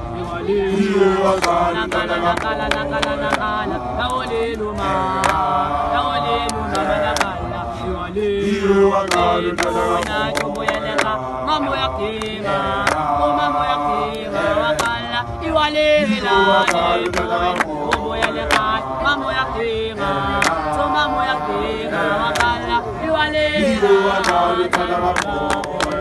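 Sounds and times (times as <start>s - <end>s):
men singing in harmony: 0.0s - 26.0s
hand claps: 1.3s - 5.5s, 6.3s - 7.4s, 9.0s - 13.2s, 14.0s - 15.1s, 16.2s - 18.8s, 20.0s - 20.9s, 22.0s - 22.8s, 23.7s - 26.0s.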